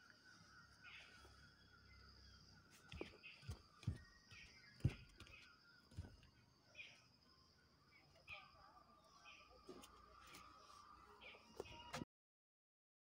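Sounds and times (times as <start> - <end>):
birds calling: 0.0 - 7.1
footsteps on concrete steps: 2.7 - 6.3.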